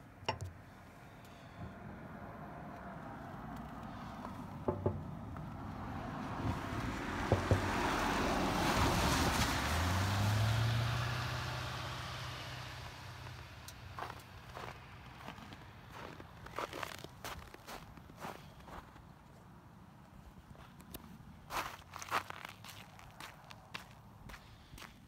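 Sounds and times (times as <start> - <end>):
low engine hum: 0.1 - 17.0
truck tyre noise passing: 1.3 - 18.6.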